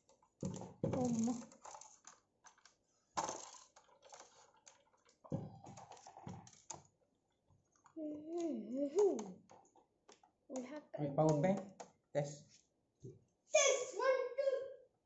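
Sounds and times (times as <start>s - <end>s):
plastic and metal parts clicking: 0.0s - 7.0s
person speaking: 0.9s - 1.5s, 10.5s - 12.5s.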